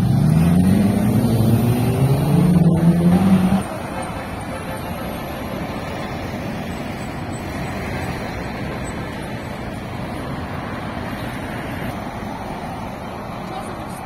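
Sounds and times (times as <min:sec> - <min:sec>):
cars passing on busy street: 0:00.0 - 0:14.0.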